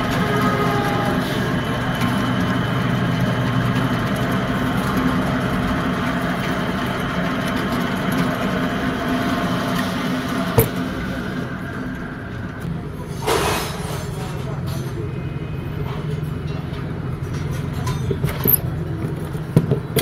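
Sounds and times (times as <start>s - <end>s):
drill press motor humming: 0.0s - 12.7s.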